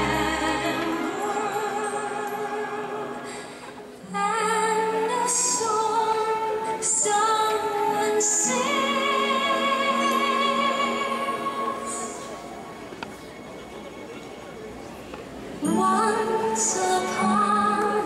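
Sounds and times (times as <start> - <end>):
woman singing operatic vibrato: 0.0 - 3.4, 4.0 - 12.3, 15.6 - 18.0.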